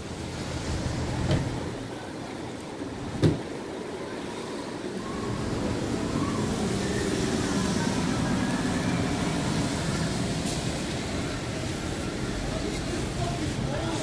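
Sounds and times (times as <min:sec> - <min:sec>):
bus engine and tyre noise: 0:00.0 - 0:14.0.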